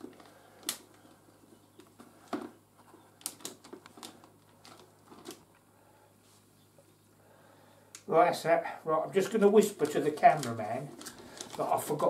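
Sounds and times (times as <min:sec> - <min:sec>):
plastic food tray crinkling: 0:01.8 - 0:05.6, 0:09.5 - 0:12.0.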